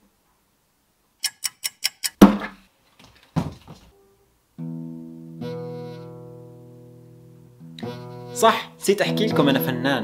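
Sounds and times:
acoustic guitar chord strummed: 4.6 - 10.0.

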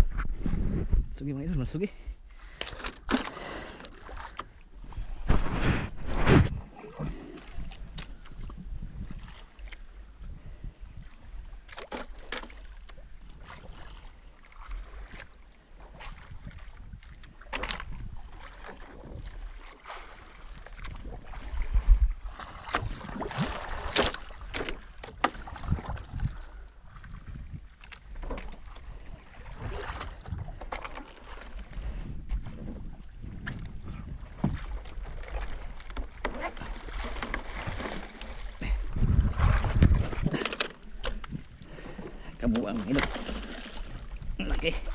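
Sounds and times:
wind on microphone: 0.0 - 2.2, 4.8 - 11.7, 15.8 - 19.6, 20.7 - 24.5, 25.3 - 30.7, 31.6 - 35.8, 36.5 - 40.4
water against boat hull: 0.0 - 44.9.

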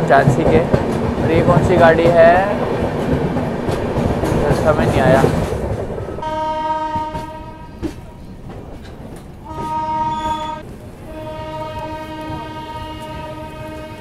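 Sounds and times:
train rumbling on tracks: 0.0 - 14.0
train horn blasts: 6.2 - 8.0, 9.4 - 14.0.

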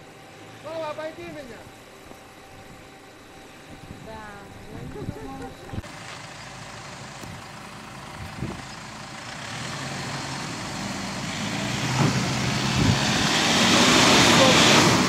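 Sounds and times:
suv engine pulling uphill: 0.0 - 15.0
tyres on dirt: 5.3 - 15.0.

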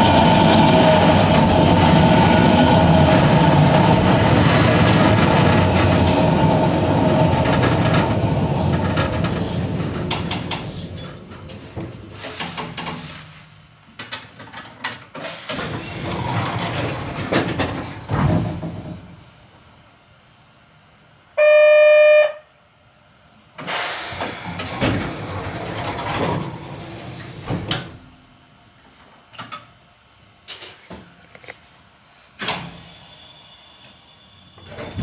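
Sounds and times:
train rattling and clicking: 0.0 - 13.2, 14.0 - 19.2, 23.6 - 27.9
train horn blast: 21.4 - 22.5.

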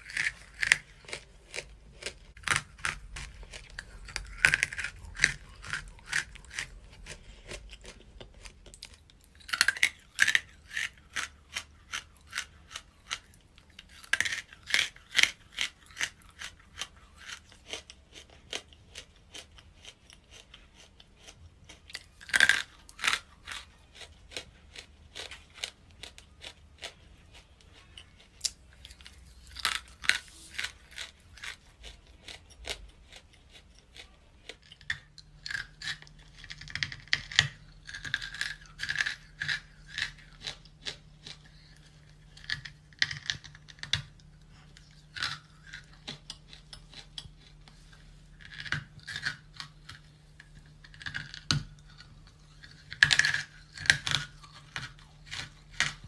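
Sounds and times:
crunching bites of chalky material: 0.0 - 33.7
gritty chewing crunches: 0.0 - 56.0.

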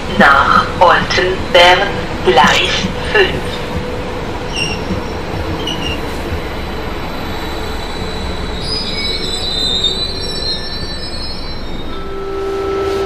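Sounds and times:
electric train rumbling: 0.0 - 13.0
wheel and brake squeal: 4.5 - 6.1, 7.4 - 12.1.

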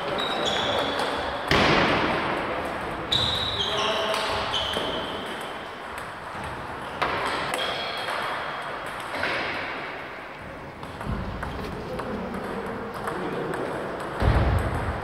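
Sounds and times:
table tennis balls clicking: 4.1 - 9.5, 10.8 - 15.0.

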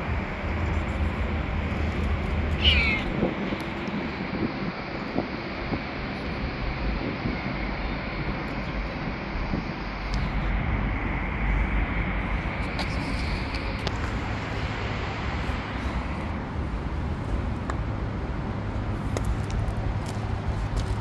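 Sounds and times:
traffic rumble: 0.0 - 21.0.

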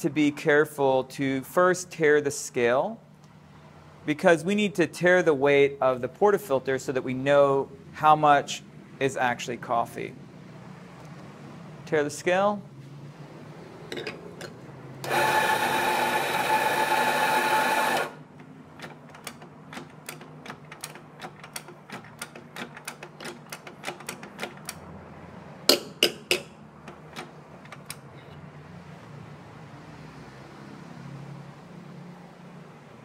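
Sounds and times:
coffee grinder motor running: 15.1 - 18.2.

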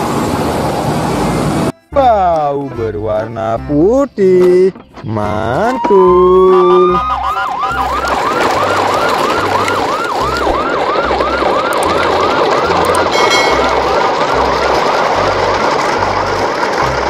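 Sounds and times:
siren yelping: 5.4 - 15.4.

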